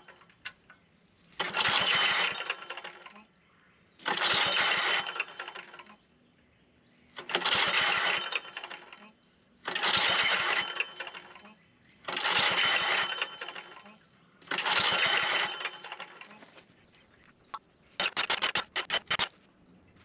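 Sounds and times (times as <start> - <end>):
small gas engine pull-start: 1.4 - 3.2, 4.0 - 6.0, 7.2 - 16.5, 18.0 - 19.3.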